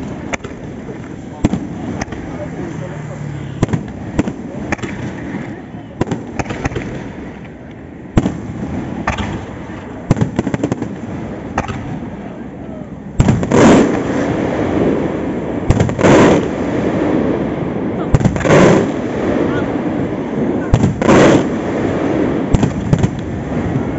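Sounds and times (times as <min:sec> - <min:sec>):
firework shells bursting: 0:00.0 - 0:02.5, 0:03.6 - 0:12.2.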